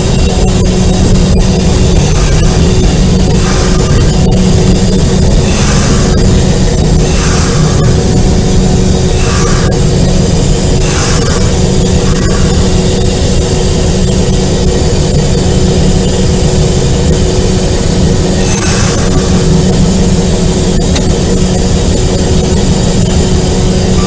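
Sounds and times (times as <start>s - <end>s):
constant hum: 0.0s - 24.0s
diesel locomotive rumbling: 0.0s - 24.0s.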